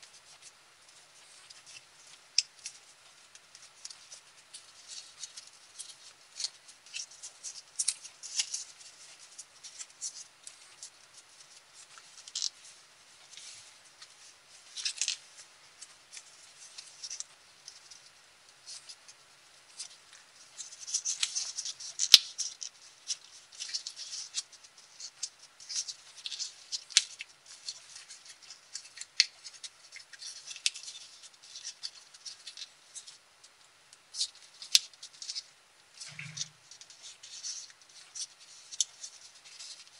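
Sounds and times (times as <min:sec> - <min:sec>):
paper crinkling and rustling: 0:00.0 - 0:39.9.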